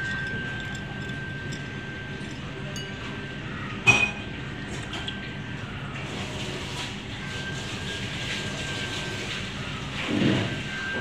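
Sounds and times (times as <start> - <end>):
ceramic crockery clink: 0.0 - 3.2, 3.8 - 5.2
steady background hum: 0.0 - 11.0.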